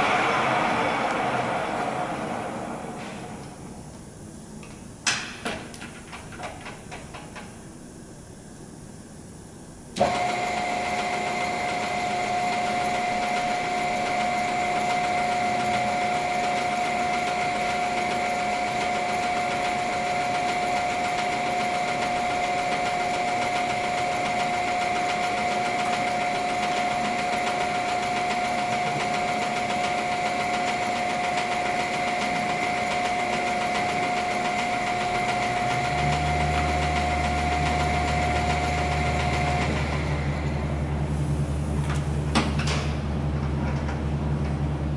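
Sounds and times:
lathe gear whine: 0.0s - 4.3s, 9.8s - 41.9s
deep steady hum: 0.0s - 5.1s.

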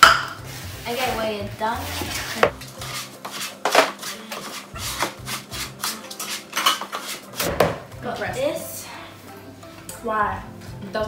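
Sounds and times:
wooden spoon scraping a bowl: 0.4s - 7.5s.

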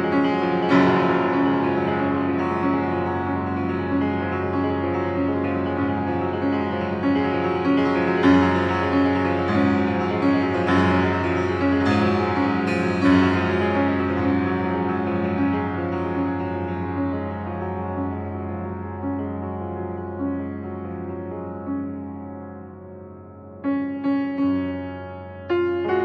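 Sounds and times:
piano music: 0.0s - 26.0s.

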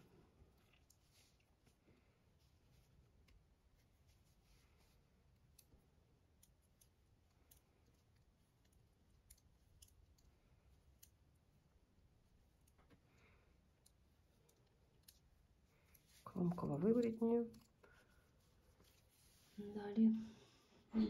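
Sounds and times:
knitting needles clicking: 0.5s - 1.7s, 5.2s - 18.1s.

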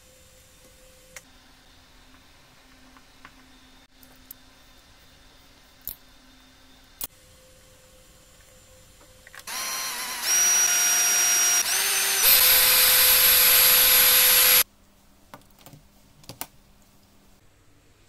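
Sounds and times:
electric drill whining: 9.4s - 14.6s.

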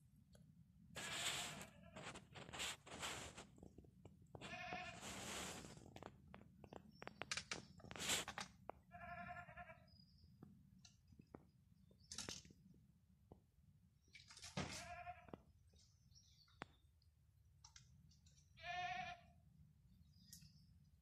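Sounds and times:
livestock bleating: 1.0s - 2.1s, 4.4s - 5.0s, 8.9s - 9.9s, 14.7s - 15.4s, 18.6s - 19.3s
faint clicks and taps: 5.8s - 8.8s.

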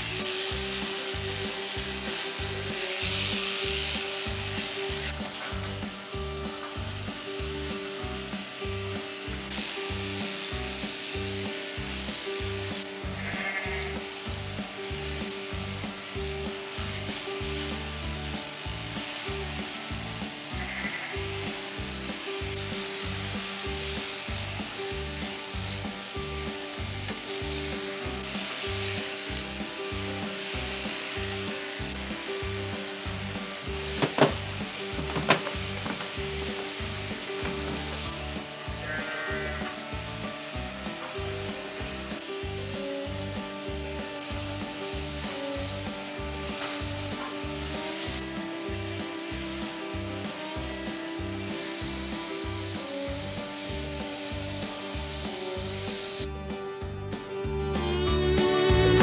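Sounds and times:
background music with steady beat: 0.0s - 59.0s
sheep bleating: 13.0s - 14.2s, 20.5s - 21.8s, 38.6s - 40.0s.

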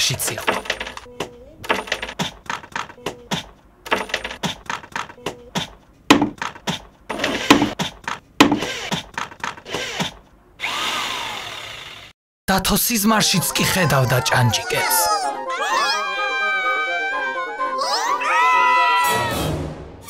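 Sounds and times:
hand tools knocking and clanking: 6.1s - 9.4s
power tool running: 9.7s - 12.2s.

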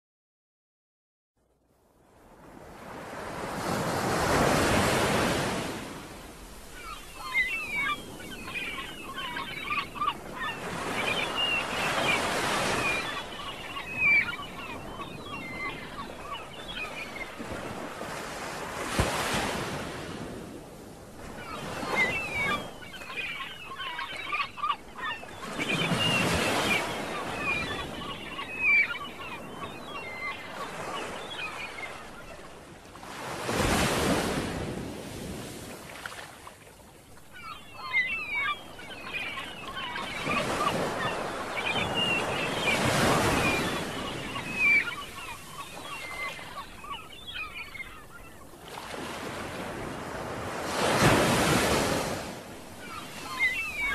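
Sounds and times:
ocean surf breaking: 2.9s - 20.6s, 33.0s - 35.8s, 39.7s - 46.8s, 48.6s - 53.4s
bird calls chirping: 6.7s - 17.5s, 21.4s - 32.4s, 37.2s - 48.5s, 52.8s - 53.9s.

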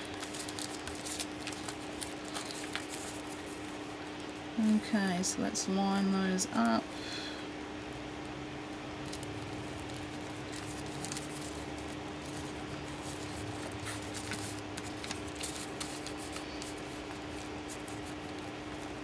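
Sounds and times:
paper envelopes rustling: 0.0s - 3.9s, 9.0s - 19.0s
steady low hum: 0.0s - 19.0s.

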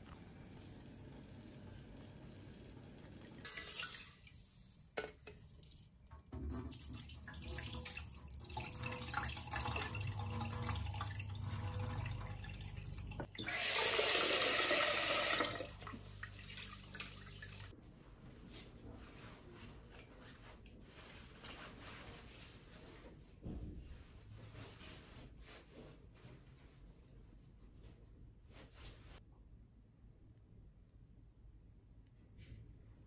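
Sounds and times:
water pouring into a sink: 0.0s - 17.7s
water sloshing in a pot: 0.0s - 17.7s.

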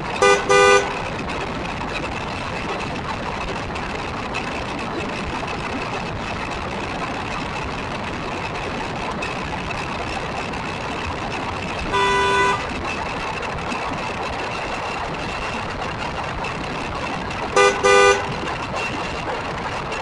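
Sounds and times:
toy buggy driving with whine: 0.0s - 20.0s
vehicle horn honking: 0.2s - 1.0s, 11.9s - 12.7s, 17.6s - 18.3s.

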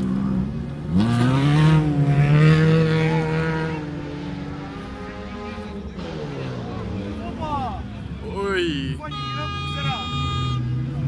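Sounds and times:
racing engine at high revs: 0.0s - 8.0s.

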